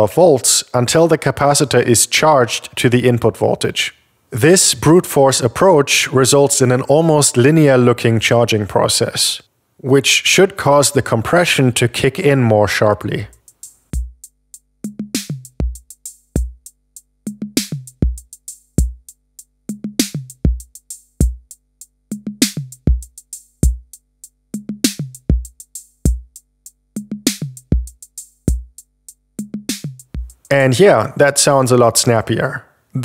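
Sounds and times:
drum machine beat: 13.3s - 30.8s.

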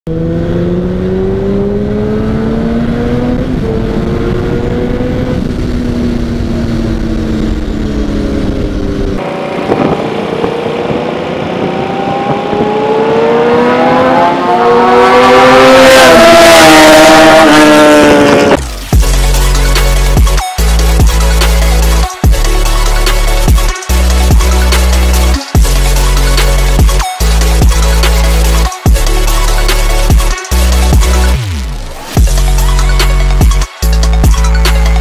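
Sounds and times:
motorcycles passing loudly: 0.1s - 18.9s
motorcycle engine accelerating: 0.1s - 32.6s
wind buffeting microphone: 3.1s - 14.0s.

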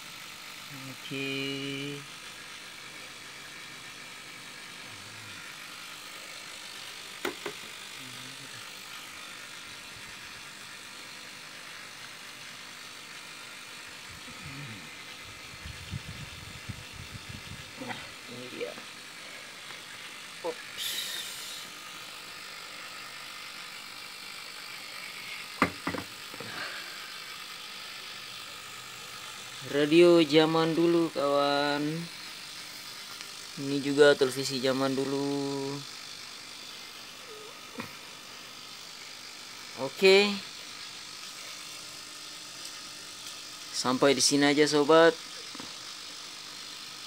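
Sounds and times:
steady hiss: 17.8s - 22.8s.

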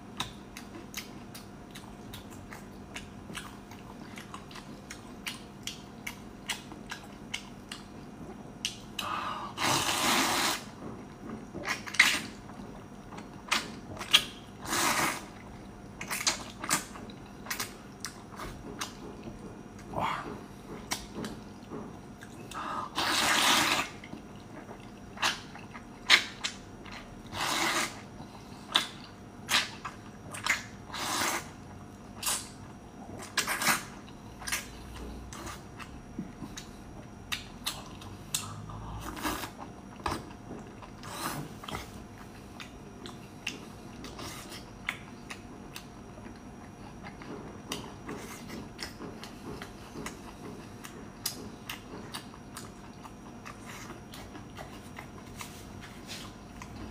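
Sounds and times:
lip smacks and chewing: 0.1s - 9.2s, 11.2s - 56.9s
slurping noodles: 9.5s - 10.7s, 14.6s - 15.5s, 22.6s - 24.1s, 27.2s - 28.1s, 30.8s - 31.6s.

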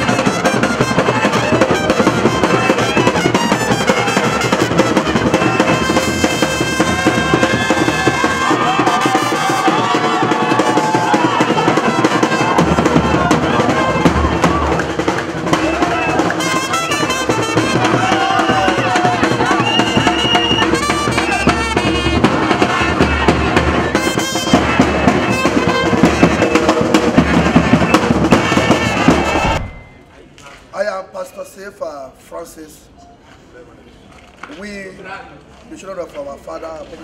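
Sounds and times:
trumpets playing melody: 0.0s - 14.8s, 15.5s - 29.6s
bass drum beat: 0.0s - 29.7s
brass band playing: 0.0s - 29.8s.

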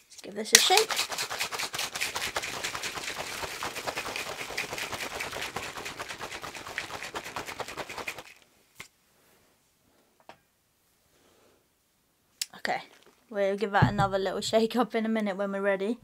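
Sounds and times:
shaker cup rattling and sloshing: 0.5s - 8.4s, 13.8s - 14.6s
light knock: 13.8s - 14.6s.

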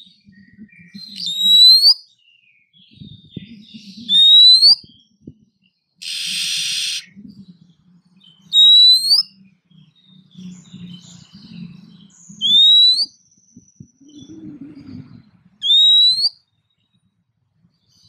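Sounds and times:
rising whistled bird notes: 0.3s - 2.2s, 3.9s - 5.0s, 6.0s - 7.2s, 8.4s - 16.4s
harsh rasping bird call: 6.0s - 7.1s, 15.6s - 16.3s.

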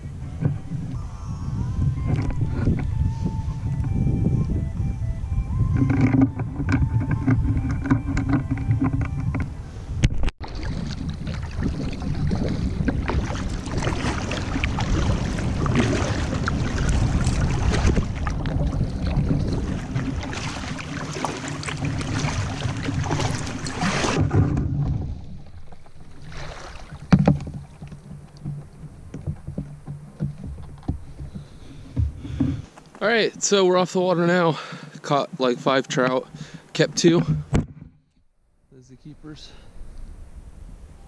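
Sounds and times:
quiet water sounds: 0.0s - 41.0s
paddle splashing through water: 5.7s - 37.5s.

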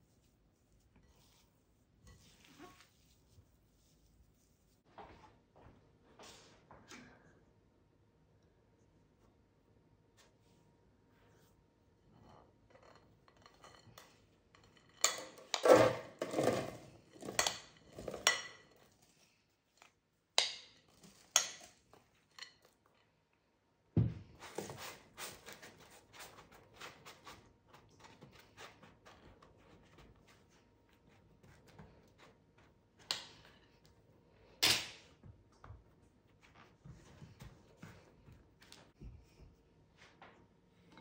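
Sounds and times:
patting dough: 0.0s - 4.9s, 24.0s - 34.0s.

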